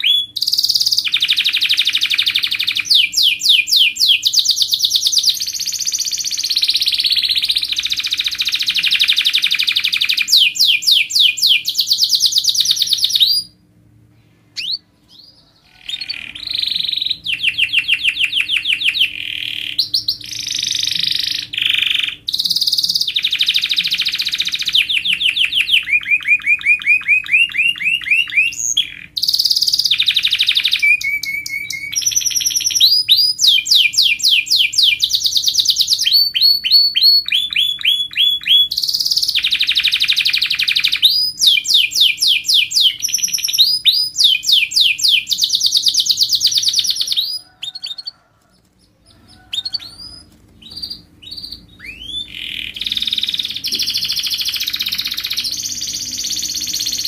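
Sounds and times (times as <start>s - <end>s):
canary singing trills: 0.0s - 57.0s.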